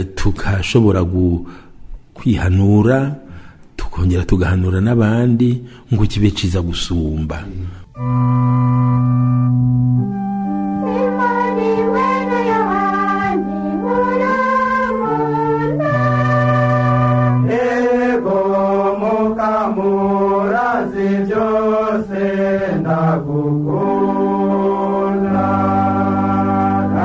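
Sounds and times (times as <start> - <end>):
sustained organ chords: 7.9 - 27.0
person singing a religious chant: 10.8 - 27.0.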